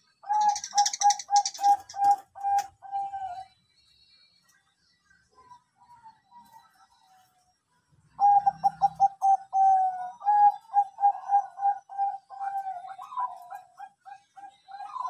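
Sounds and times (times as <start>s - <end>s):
dove cooing: 0.0s - 3.5s, 8.2s - 15.0s.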